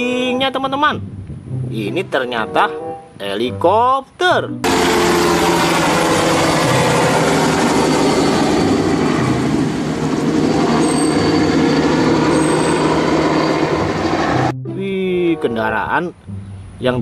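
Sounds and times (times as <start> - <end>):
helicopter flying low past: 4.6 - 14.6.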